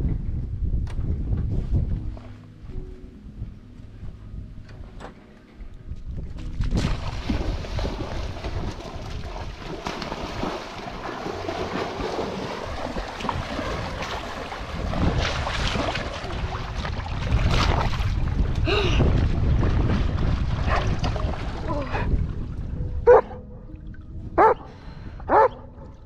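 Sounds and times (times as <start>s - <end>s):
wind buffeting microphone: 0.0s - 5.0s, 5.6s - 26.0s
water splashing: 6.5s - 24.6s.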